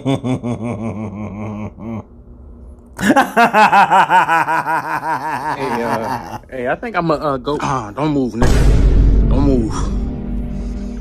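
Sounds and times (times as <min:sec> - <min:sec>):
man laughing: 0:00.0 - 0:02.1, 0:03.0 - 0:06.5.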